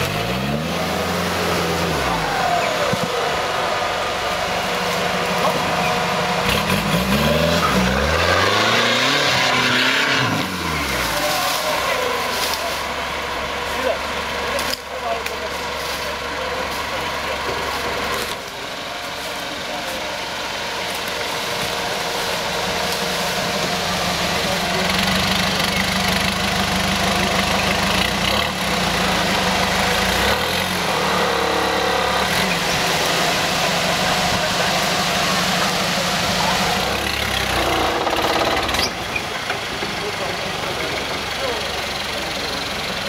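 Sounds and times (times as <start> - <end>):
off-road vehicle engine running: 0.0 - 43.0.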